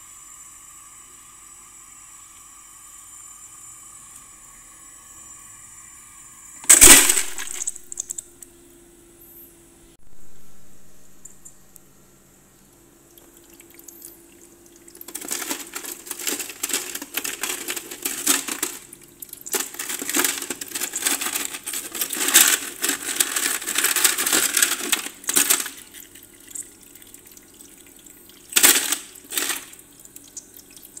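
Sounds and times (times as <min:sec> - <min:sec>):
ice cubes clinking in plastic basket: 0:06.6 - 0:08.2, 0:15.0 - 0:26.2, 0:28.4 - 0:29.8
ice cubes clattering: 0:06.7 - 0:08.2, 0:15.0 - 0:26.6, 0:28.4 - 0:29.8.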